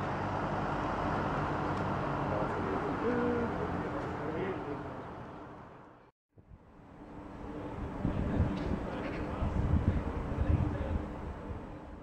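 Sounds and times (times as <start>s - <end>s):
street background noise: 0.0s - 12.0s.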